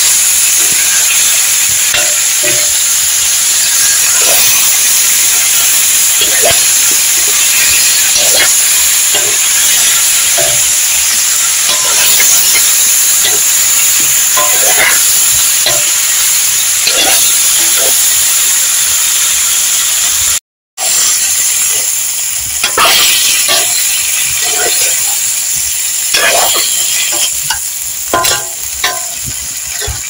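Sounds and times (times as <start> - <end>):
food sizzling in a frying pan: 0.0 - 30.0
spatula scraping a pan: 1.9 - 18.1, 22.6 - 25.4, 26.1 - 30.0.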